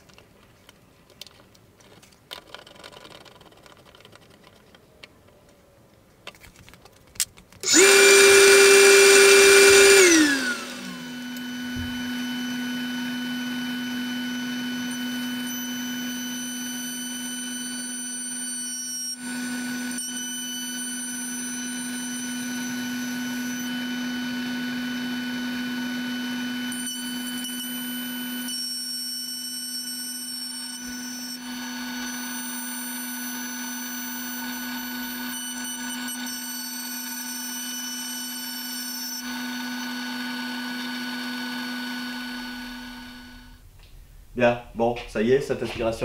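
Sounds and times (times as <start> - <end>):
router spindle whine: 7.6 - 43.6.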